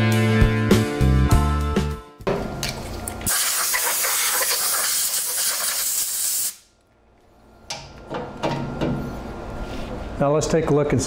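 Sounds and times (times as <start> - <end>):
compressed air blow gun hissing: 3.3 - 6.6.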